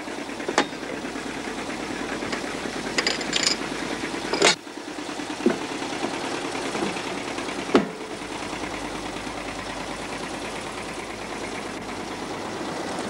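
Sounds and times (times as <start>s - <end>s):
steady engine running: 0.0s - 13.0s
lever clunking over: 2.2s - 3.7s, 4.3s - 4.6s
short metal rattle: 2.2s - 4.6s.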